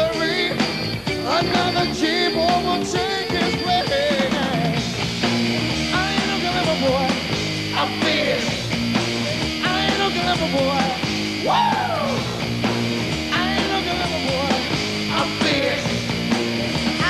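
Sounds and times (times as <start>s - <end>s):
man singing lead vocals: 0.0s - 5.0s, 5.8s - 12.4s, 13.2s - 16.4s
live rock band playing: 0.0s - 17.0s.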